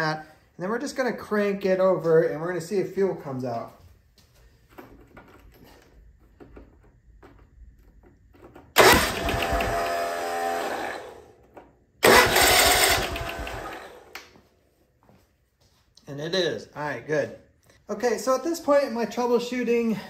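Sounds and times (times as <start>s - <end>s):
mower engine cranking by starter: 8.7s - 11.3s, 12.0s - 14.2s.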